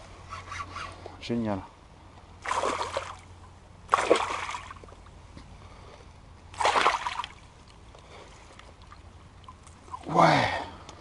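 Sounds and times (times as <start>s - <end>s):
fish splashing in water: 2.4s - 3.3s, 3.9s - 4.8s, 6.6s - 7.4s.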